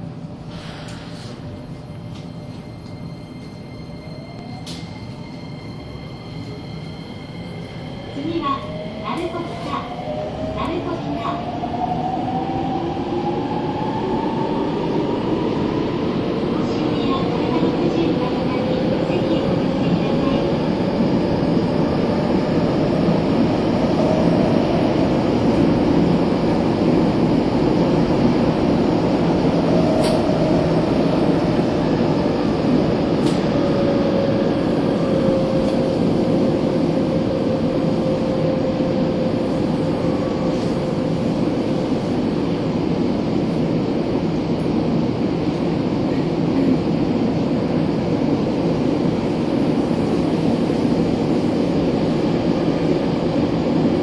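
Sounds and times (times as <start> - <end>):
train wheels and motors rumbling: 0.0 - 54.0.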